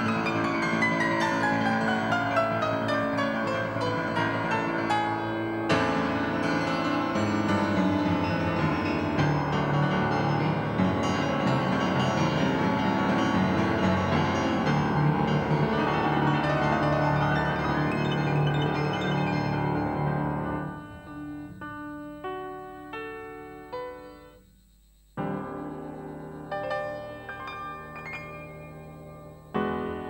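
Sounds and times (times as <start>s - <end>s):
solo jazz piano ballad: 0.0s - 30.0s.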